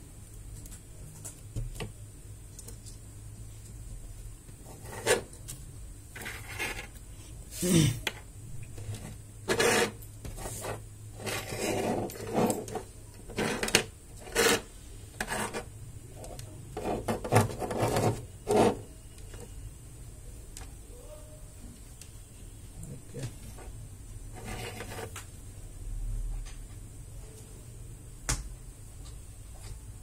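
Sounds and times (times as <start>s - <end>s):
boards scraping on tabletop: 6.2s - 6.9s, 8.8s - 15.7s, 16.8s - 18.8s, 24.3s - 25.1s.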